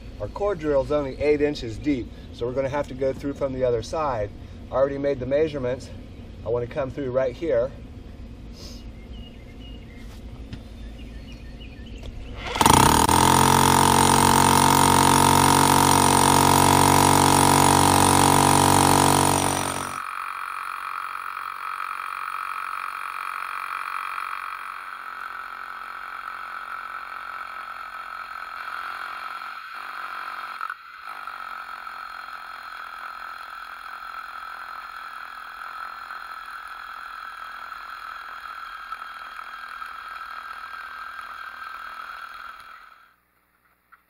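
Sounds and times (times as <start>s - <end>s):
core drill boring through brick: 12.3s - 43.2s.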